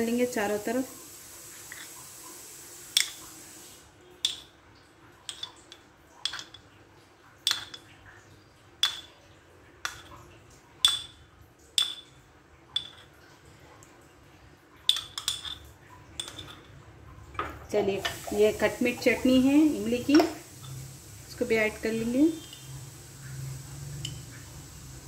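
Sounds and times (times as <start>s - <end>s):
spoon clinking against dishes: 5.3s - 6.7s, 7.4s - 7.9s, 8.8s - 9.2s, 10.8s - 11.2s, 11.8s - 13.2s, 14.9s - 16.8s.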